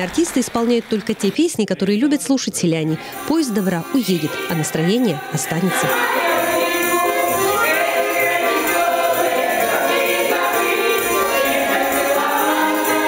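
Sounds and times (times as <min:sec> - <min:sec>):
women's choir singing folk song: 0:02.8 - 0:13.0
jingling tambourine beat: 0:03.1 - 0:13.0.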